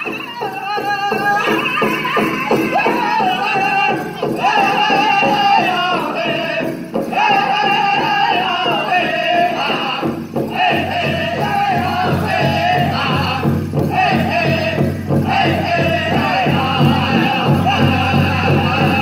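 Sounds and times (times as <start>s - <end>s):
voices singing together: 0.0s - 19.0s
large drum beating: 0.1s - 19.0s.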